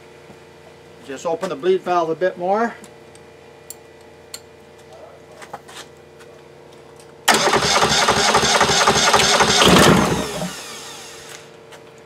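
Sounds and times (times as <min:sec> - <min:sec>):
diesel engine cranking on starter: 0:07.3 - 0:11.3
starter whine winding down: 0:07.3 - 0:11.5.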